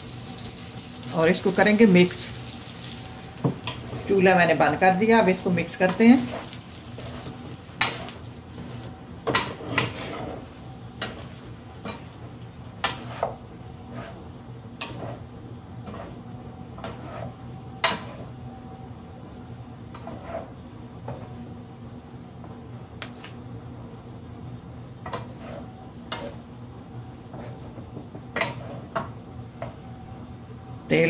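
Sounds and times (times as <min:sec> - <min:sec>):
spatula scraping frying pan: 0:05.6 - 0:18.4, 0:19.9 - 0:21.6, 0:25.0 - 0:26.5, 0:27.3 - 0:29.1.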